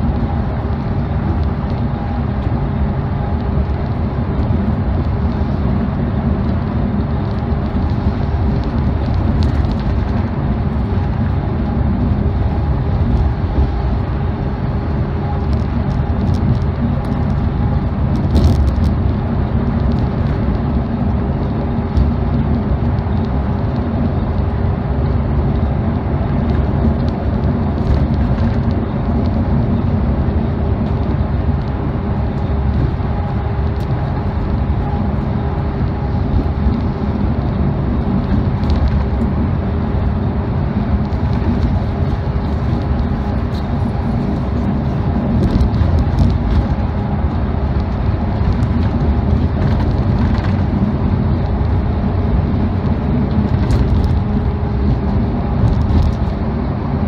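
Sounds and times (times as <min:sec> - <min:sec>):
coach engine hum: 0:00.0 - 0:57.0.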